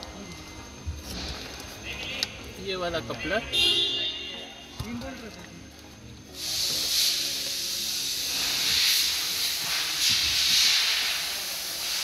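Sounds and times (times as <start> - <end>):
steady high hiss: 6.2 - 12.0.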